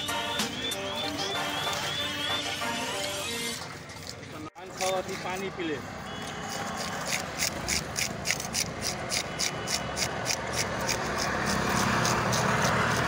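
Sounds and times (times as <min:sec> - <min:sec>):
knife scraping fish scales: 0:06.3 - 0:13.0.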